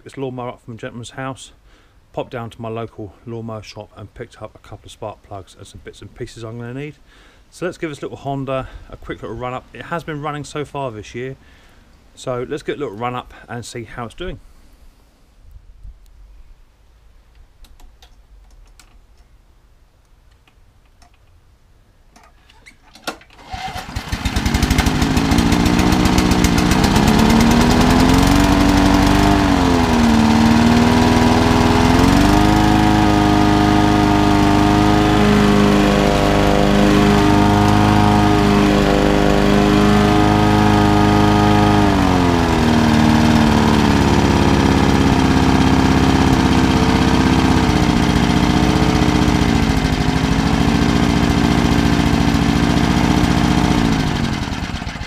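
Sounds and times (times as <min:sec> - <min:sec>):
lawnmower engine running: 0:23.3 - 0:55.0.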